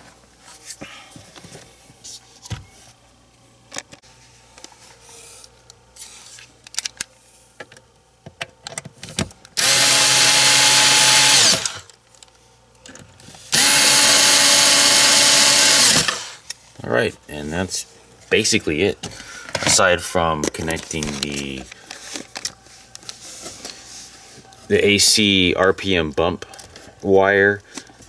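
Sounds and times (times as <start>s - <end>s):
parts being handled: 3.7s - 9.6s, 19.0s - 24.7s
power drill whirring: 9.6s - 11.9s, 13.5s - 16.4s.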